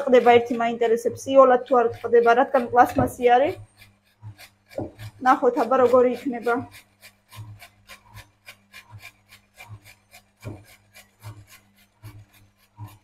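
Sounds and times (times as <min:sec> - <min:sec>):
carrot rasping on a grater: 0:00.0 - 0:13.0.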